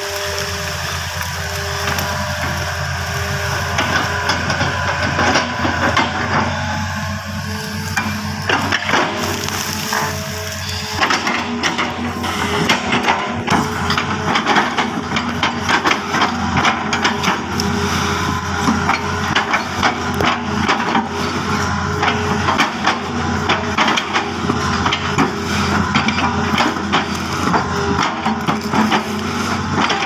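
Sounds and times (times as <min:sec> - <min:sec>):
palm wood cracking and splitting: 0:00.0 - 0:06.5, 0:07.9 - 0:30.0
excavator diesel engine running: 0:00.0 - 0:30.0.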